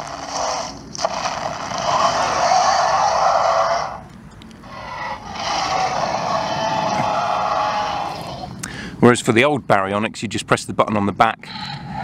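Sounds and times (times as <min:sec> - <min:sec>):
electronic dinosaur roar: 0:00.0 - 0:08.6.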